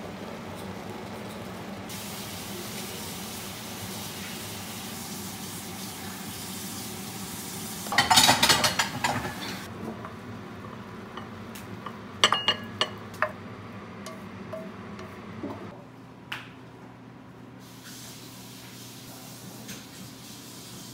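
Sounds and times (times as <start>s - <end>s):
food sizzling in frying pan: 1.4s - 13.2s
clinks against ceramic bowl: 11.1s - 13.4s.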